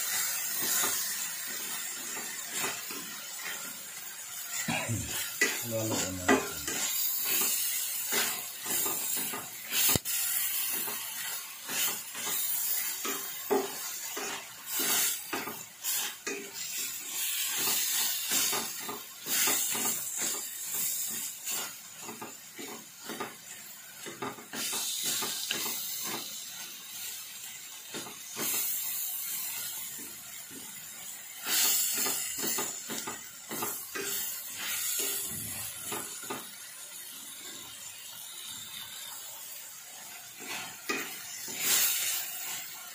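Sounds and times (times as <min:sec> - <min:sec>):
vegetables sizzling in oil: 0:00.0 - 0:42.9
wooden spatula scraping a pan: 0:04.4 - 0:23.4, 0:40.3 - 0:42.8.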